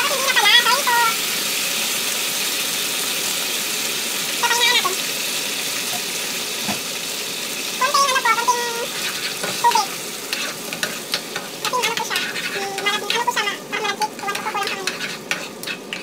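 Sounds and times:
sauce sizzling in a frying pan: 0.0 - 16.0
spatula scraping against pan: 8.5 - 16.0.

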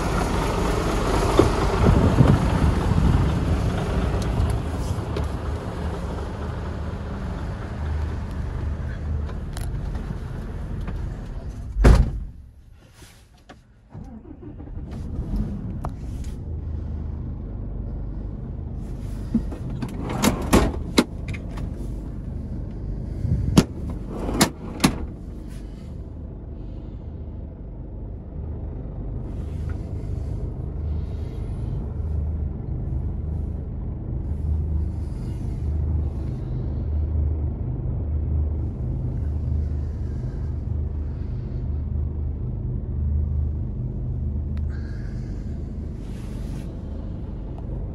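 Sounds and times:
diesel engine idling: 0.0 - 11.7, 14.0 - 47.9
loud thump: 11.8 - 12.4.

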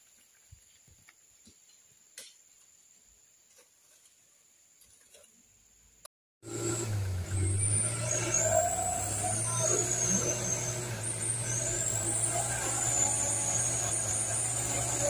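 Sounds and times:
diesel truck engine under load: 6.4 - 15.0.

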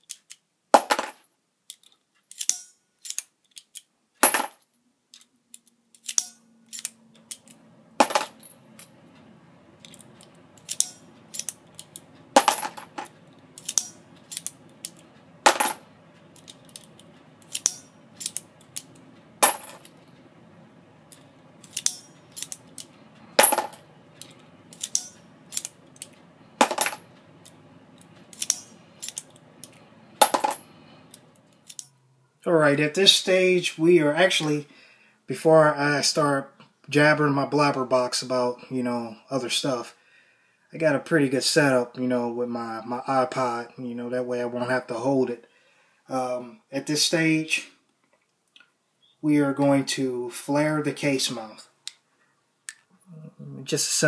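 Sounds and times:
faint steady hum: 0.5 - 54.0
priming tool clicking: 13.6 - 15.0, 16.4 - 19.0, 27.4 - 30.3.

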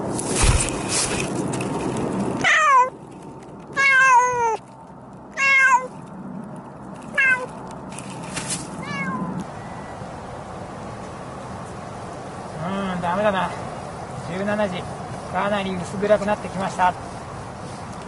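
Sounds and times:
rustling: 0.0 - 9.5
cat meowing: 2.4 - 2.9, 3.8 - 4.6, 5.4 - 5.9, 7.1 - 7.5, 8.8 - 9.9.

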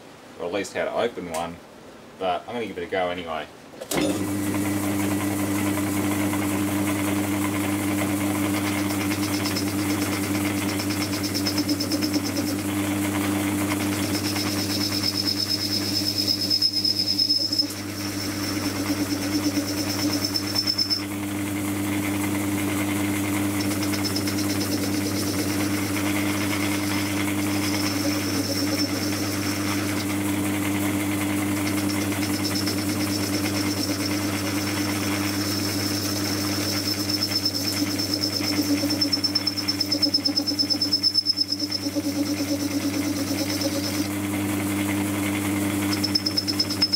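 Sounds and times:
lathe motor hum: 4.0 - 46.9
high-pitched cutting squeal: 8.8 - 12.7, 13.3 - 21.3, 22.3 - 30.3, 31.3 - 44.2, 45.8 - 46.9.

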